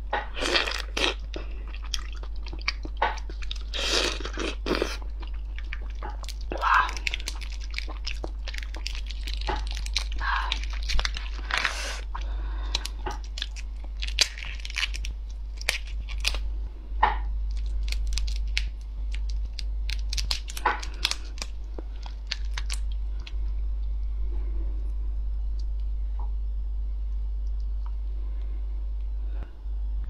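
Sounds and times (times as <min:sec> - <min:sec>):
low hum: 0:00.0 - 0:30.0
prawn shell cracking: 0:02.5 - 0:16.5, 0:17.4 - 0:23.4.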